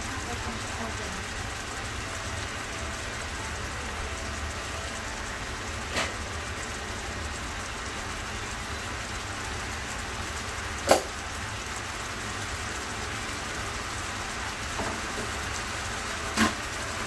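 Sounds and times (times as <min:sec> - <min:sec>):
fish sizzling in a frying pan: 0:00.0 - 0:17.0.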